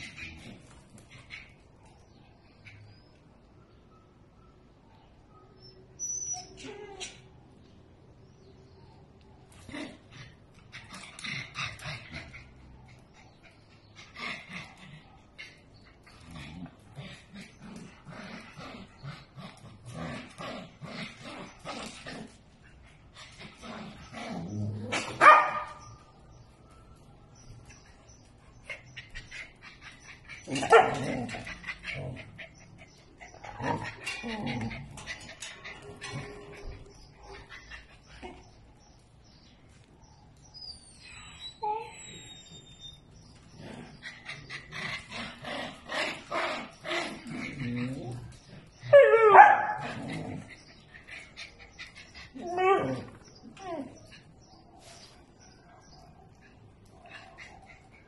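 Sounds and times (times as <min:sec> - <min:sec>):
small dogs play-fighting: 0:00.0 - 0:03.2, 0:09.4 - 0:26.2, 0:27.4 - 0:39.9, 0:43.0 - 0:58.0.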